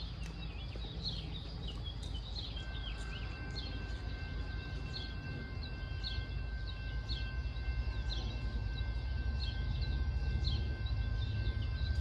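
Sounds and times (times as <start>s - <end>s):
distant locomotive rumble: 0.0s - 12.0s.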